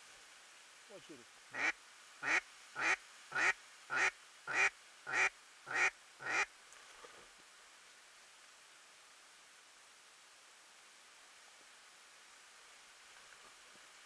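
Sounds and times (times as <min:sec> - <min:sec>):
duck quacking: 0:01.5 - 0:06.5.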